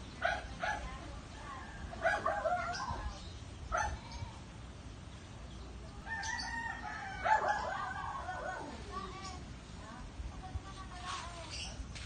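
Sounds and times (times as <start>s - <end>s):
rooster crowing: 6.1s - 8.0s.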